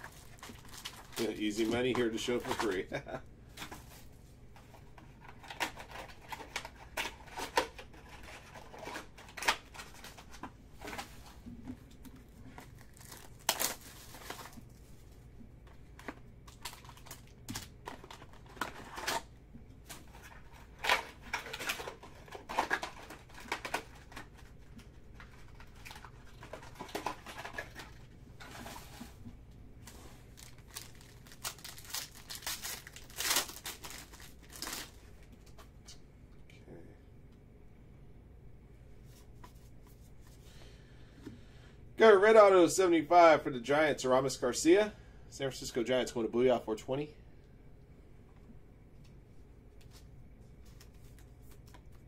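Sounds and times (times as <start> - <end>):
foil card packs crinkling: 0.0 - 11.4, 12.1 - 29.1, 29.8 - 35.3
foil wrapper tearing open: 12.6 - 14.6, 30.3 - 35.0.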